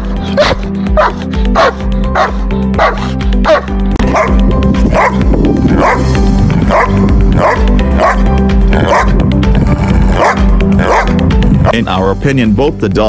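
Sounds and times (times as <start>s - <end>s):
background music: 0.0s - 13.0s
large dogs barking: 0.2s - 9.2s, 10.0s - 11.3s.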